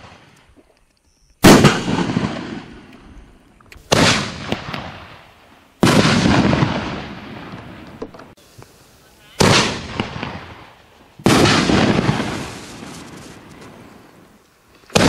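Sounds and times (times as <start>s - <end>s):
firework shells bursting: 3.7s - 8.8s, 9.4s - 15.0s.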